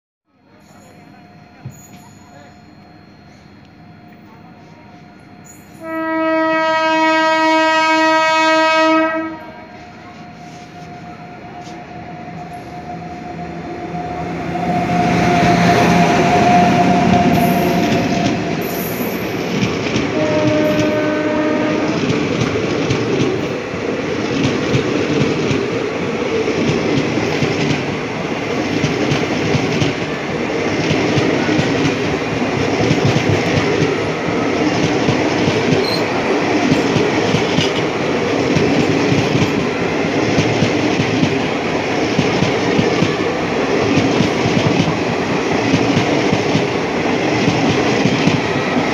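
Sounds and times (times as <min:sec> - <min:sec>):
train rumbling past: 0:02.8 - 0:48.9
locomotive horn: 0:05.8 - 0:11.9, 0:12.6 - 0:19.2, 0:20.0 - 0:22.2.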